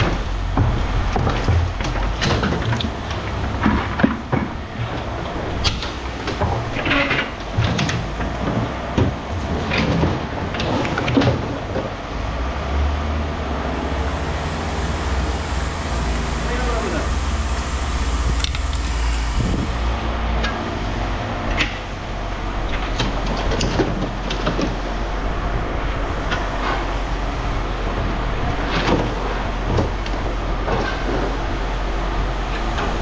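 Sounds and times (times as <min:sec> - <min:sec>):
knocks clanks and rattles: 0:00.0 - 0:12.2, 0:20.4 - 0:33.0.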